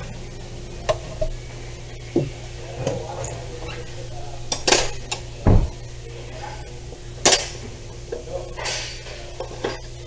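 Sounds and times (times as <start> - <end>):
steady low hum: 0.0 - 10.0
metal tools clinking and rattling: 4.5 - 5.2
dull thump: 5.4 - 5.8.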